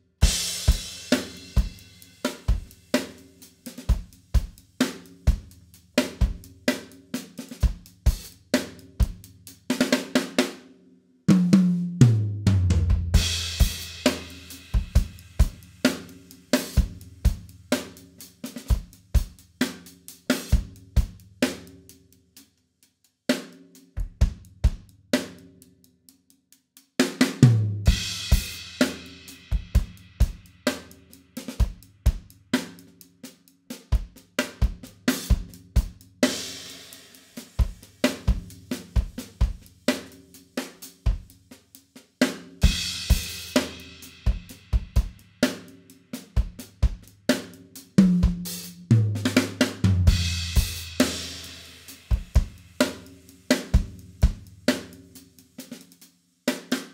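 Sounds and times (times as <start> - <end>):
drum kit groove: 0.0 - 10.6, 11.3 - 56.9.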